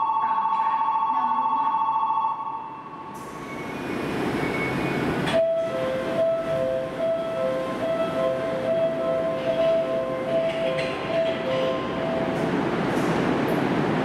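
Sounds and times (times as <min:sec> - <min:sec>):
train running noise: 0:03.0 - 0:14.0.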